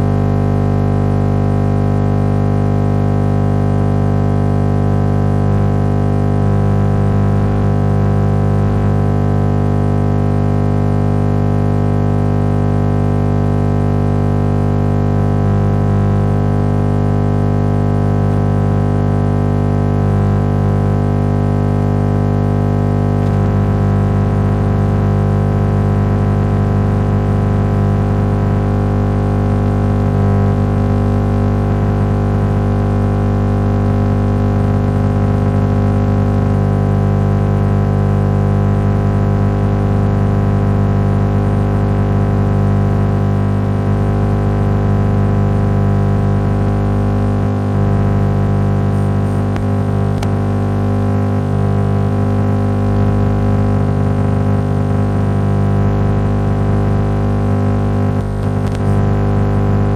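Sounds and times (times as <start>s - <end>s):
radio interference buzz: 0.0s - 2.4s, 6.4s - 12.4s, 13.4s - 16.0s, 16.6s - 26.4s, 27.0s - 36.6s, 39.0s - 42.5s, 43.4s - 55.0s, 55.8s - 56.7s, 58.1s - 59.9s
radio hiss: 48.9s - 51.4s, 58.2s - 59.9s.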